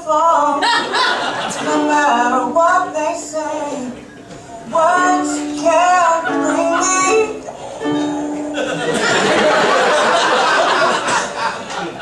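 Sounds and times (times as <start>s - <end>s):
man and woman singing: 0.0s - 9.0s.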